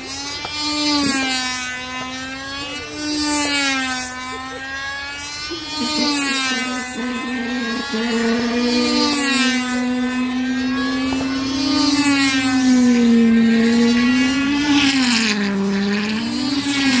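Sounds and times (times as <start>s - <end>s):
model airplane engines buzzing: 0.0s - 17.0s.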